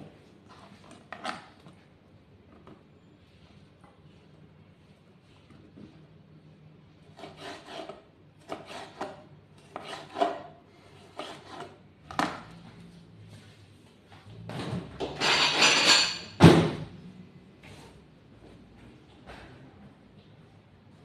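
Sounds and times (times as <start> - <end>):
knife slicing tomato on board: 7.1 - 11.8.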